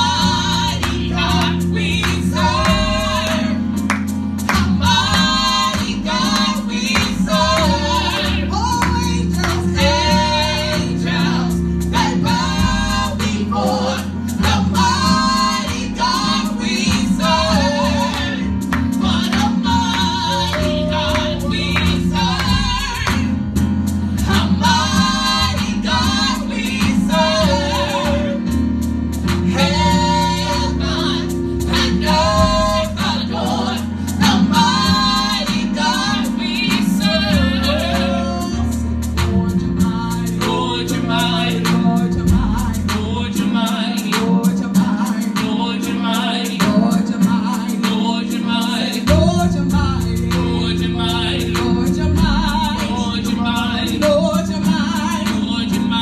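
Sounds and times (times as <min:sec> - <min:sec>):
instrumental backing: 0:00.0 - 0:56.0
women singing gospel song: 0:00.0 - 0:56.0.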